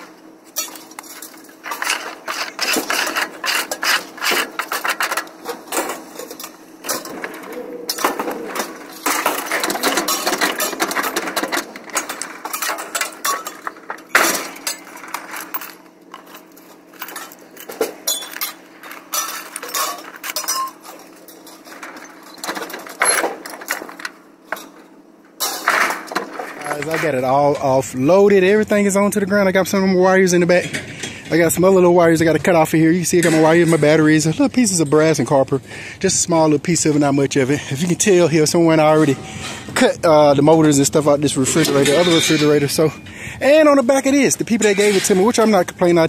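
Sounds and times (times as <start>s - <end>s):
scrap metal clanking and rattling: 0.0s - 27.8s, 30.4s - 31.5s, 40.6s - 43.1s, 43.8s - 45.8s.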